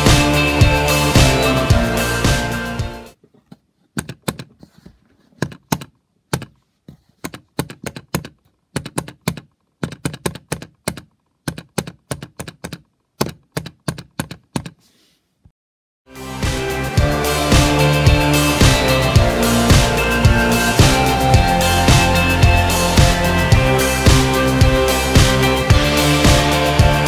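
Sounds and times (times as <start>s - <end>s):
background music: 0.0s - 3.2s, 16.1s - 27.0s.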